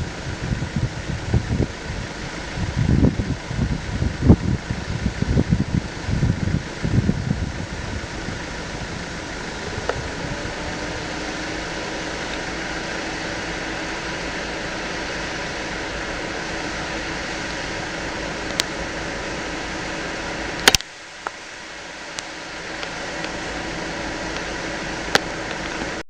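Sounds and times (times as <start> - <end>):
vehicle engine idling: 0.0 - 26.0
sharp clicks: 20.6 - 21.4.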